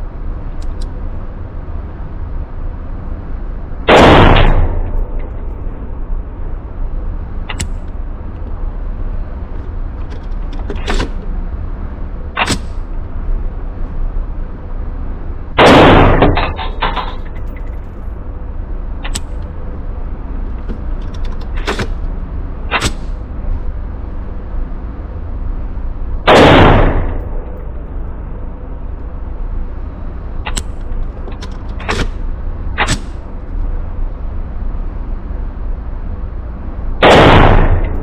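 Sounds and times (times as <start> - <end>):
low rumble: 0.0 - 38.0
loud gunshot blasts: 3.9 - 4.8, 15.6 - 16.6, 26.3 - 27.2, 37.0 - 38.0.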